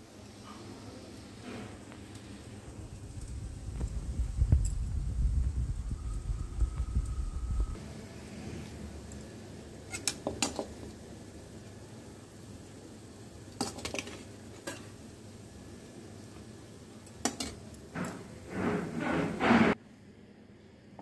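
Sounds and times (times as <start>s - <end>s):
metal spoon clinking on dish: 17.2s - 18.2s.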